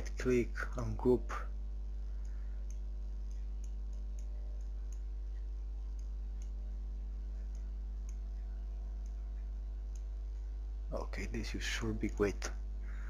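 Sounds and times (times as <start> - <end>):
low electrical hum: 0.0 - 13.0
computer mouse clicks: 2.1 - 6.6, 7.4 - 10.5.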